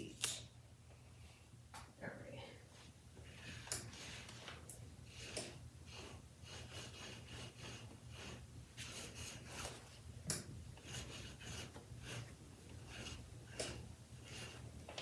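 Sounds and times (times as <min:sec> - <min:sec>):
lint roller rasping on fabric: 0:03.3 - 0:15.0.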